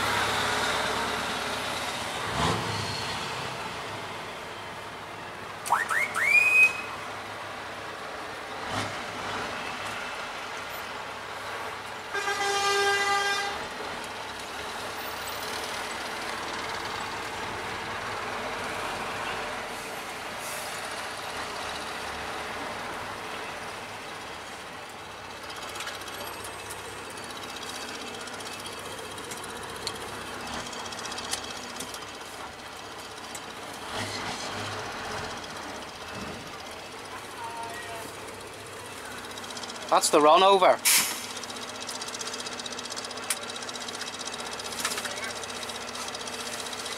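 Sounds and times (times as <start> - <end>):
diesel engine running: 0.0 - 46.9
truck horn: 12.1 - 13.7, 37.2 - 38.2.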